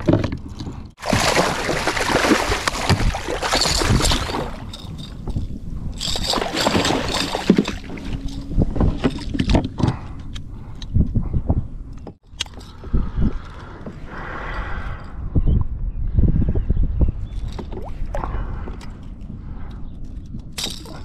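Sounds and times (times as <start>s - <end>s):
fish thrashing and splashing: 1.0s - 5.4s, 6.0s - 9.6s
knocks and scrapes on hull: 6.2s - 10.2s.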